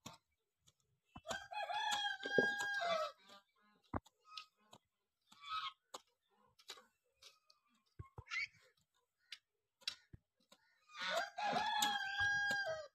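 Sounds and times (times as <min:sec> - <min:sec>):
hoes chopping into soil: 0:00.0 - 0:03.2, 0:09.4 - 0:12.9
hens clucking: 0:01.1 - 0:12.9
rooster crowing: 0:01.4 - 0:03.1, 0:11.0 - 0:12.9.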